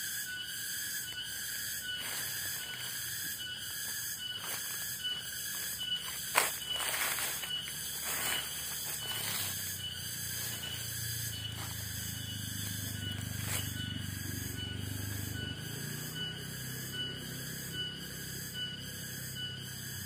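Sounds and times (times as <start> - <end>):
insects chorus: 0.0 - 20.0
pulsing high buzz: 0.0 - 20.0
steady high tones: 1.6 - 19.4
low hum: 5.5 - 18.9.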